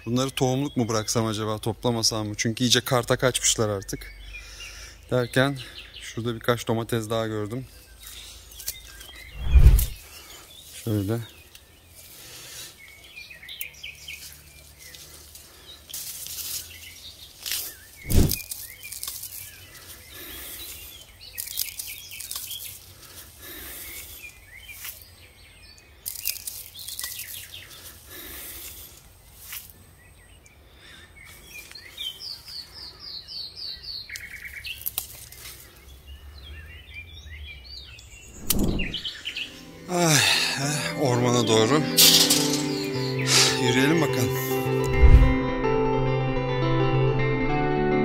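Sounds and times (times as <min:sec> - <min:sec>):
small birds chirping: 0:00.0 - 0:44.8
rustle of plant leaves: 0:07.8 - 0:25.4, 0:26.0 - 0:30.1, 0:31.2 - 0:32.7, 0:34.1 - 0:36.0
sharp knock: 0:38.4 - 0:39.0.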